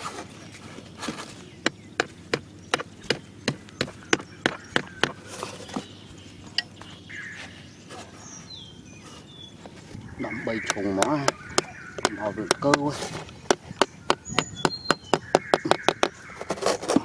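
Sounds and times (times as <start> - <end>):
hatchet knocking on cardboard: 1.6 - 5.2, 10.7 - 12.9, 13.5 - 16.2.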